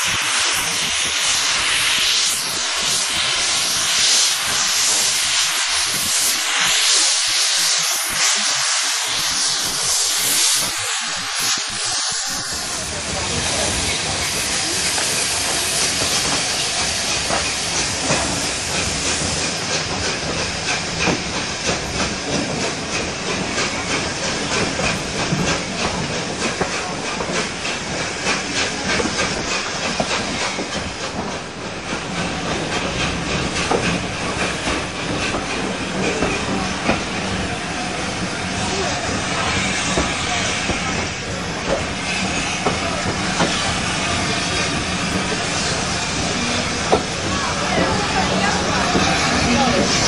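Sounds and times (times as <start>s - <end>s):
steam hissing: 0.0s - 50.0s
train rumble: 0.0s - 50.0s.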